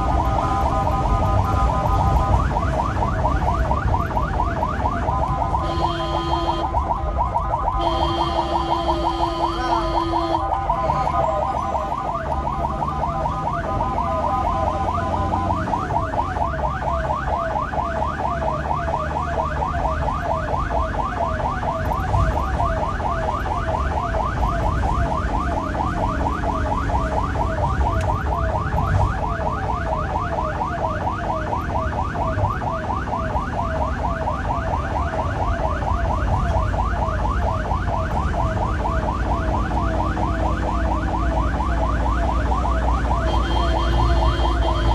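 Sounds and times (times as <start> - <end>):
ambulance siren wailing: 0.0 - 44.9
engine and tyre rumble: 0.0 - 44.9.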